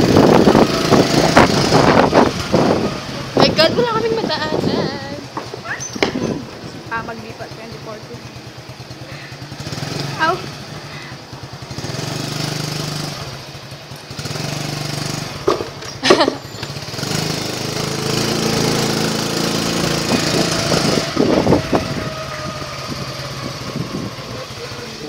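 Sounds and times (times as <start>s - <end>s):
small motorbike engine running: 0.0s - 25.0s
sharp knocks: 5.4s - 6.4s.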